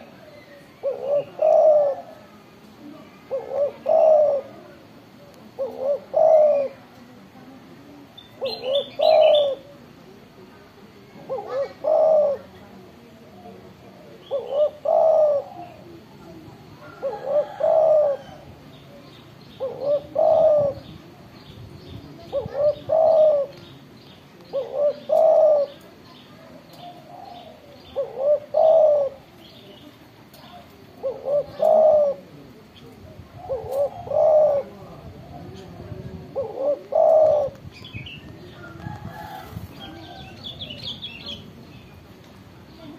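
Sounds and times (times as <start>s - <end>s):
dove cooing: 0.0s - 2.4s, 3.0s - 7.0s, 8.3s - 9.8s, 11.1s - 21.2s, 22.1s - 23.8s, 24.4s - 32.6s, 33.3s - 41.5s
small birds chirping: 11.4s - 34.7s.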